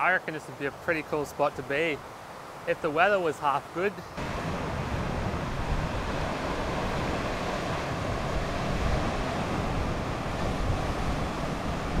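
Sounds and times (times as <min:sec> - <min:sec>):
surf washing on rocky shore: 0:04.2 - 0:12.0
wind buffeting microphone: 0:04.2 - 0:12.0.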